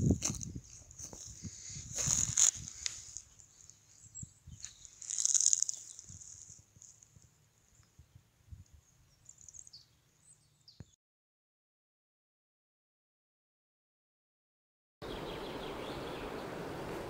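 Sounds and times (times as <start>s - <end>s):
rustling in dry grass: 0.0s - 7.8s
faint bird chirps: 7.6s - 11.0s.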